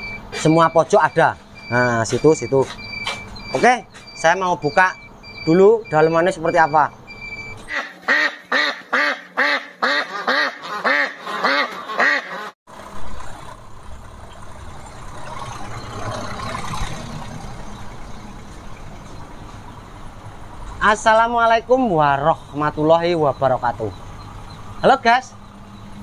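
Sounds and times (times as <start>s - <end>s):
duck quacking: 7.7s - 12.6s.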